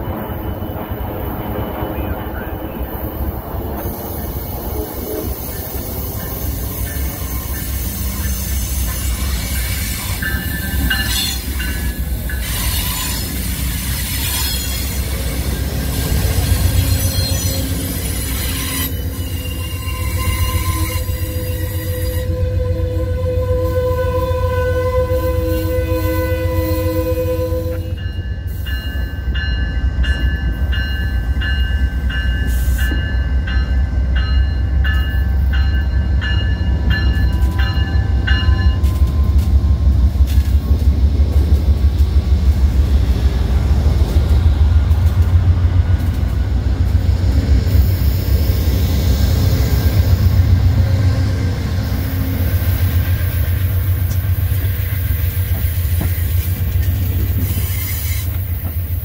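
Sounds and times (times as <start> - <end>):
train rumbling past: 0.0 - 59.0
train air horn chord: 19.6 - 28.0.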